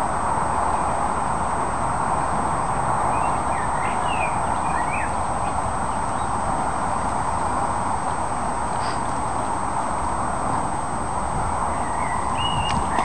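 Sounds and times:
steady rushing noise: 0.0 - 13.0
small bird chirping: 11.7 - 13.0.

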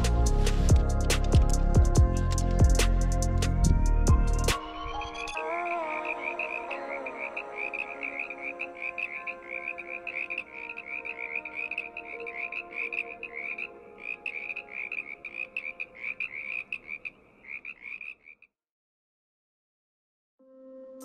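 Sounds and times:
background music: 0.0 - 16.8
frogs croaking: 5.2 - 18.6.

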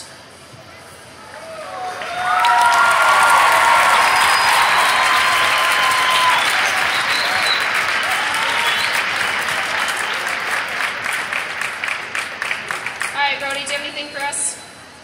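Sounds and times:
large crowd applauding: 1.5 - 13.8.

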